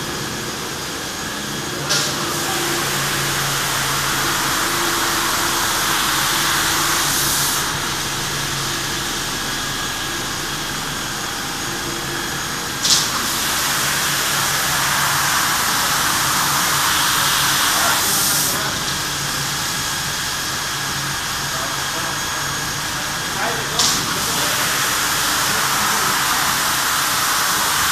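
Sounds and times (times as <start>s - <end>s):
low motor hum: 0.0s - 26.0s
water spraying onto rug: 1.9s - 9.1s, 12.8s - 19.1s.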